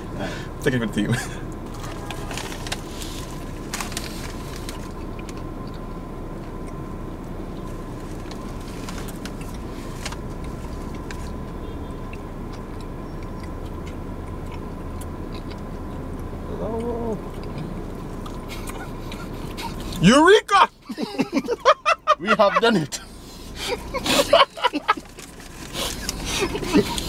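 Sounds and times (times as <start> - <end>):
car engine idling hum: 0.0 - 27.0
chewing clicks: 4.8 - 6.8, 12.0 - 19.2
person humming: 16.5 - 17.7.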